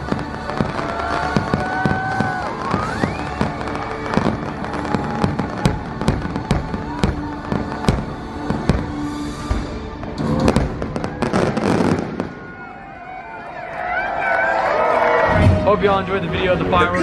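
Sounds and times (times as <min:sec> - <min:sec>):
fireworks crackle: 0:00.0 - 0:12.8
fireworks bangs: 0:00.0 - 0:12.9.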